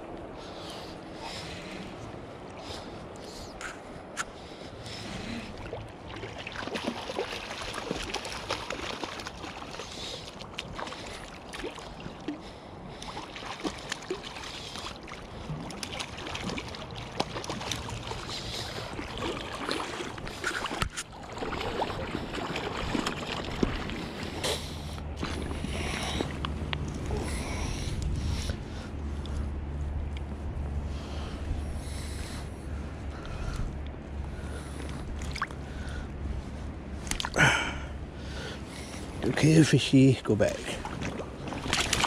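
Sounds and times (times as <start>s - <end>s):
river water: 0.0s - 42.0s
fish splashing in water: 5.5s - 24.5s, 40.8s - 42.0s.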